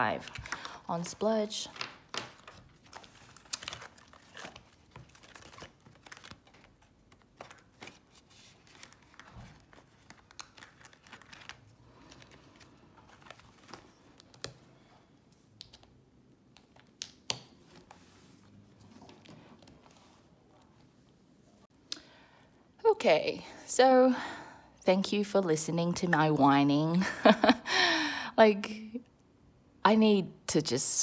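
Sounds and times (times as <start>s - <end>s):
paper rustling and crinkling: 0.0s - 14.6s.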